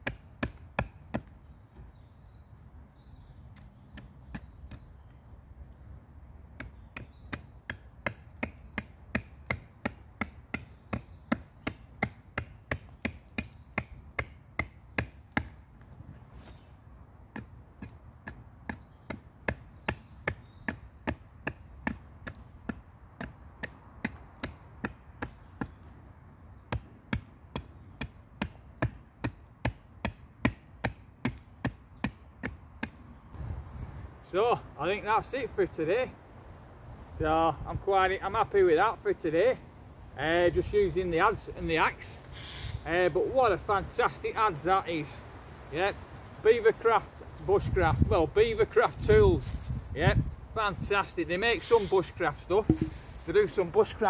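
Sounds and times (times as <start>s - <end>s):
carving tool chopping wood: 0.0s - 1.4s, 3.6s - 4.9s, 6.6s - 15.7s, 17.3s - 26.0s, 26.6s - 33.0s, 52.6s - 53.0s.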